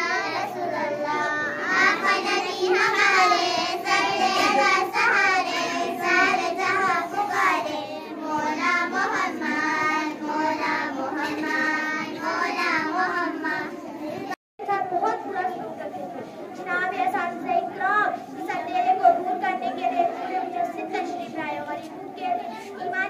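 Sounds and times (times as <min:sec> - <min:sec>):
girls singing: 0:00.0 - 0:14.4.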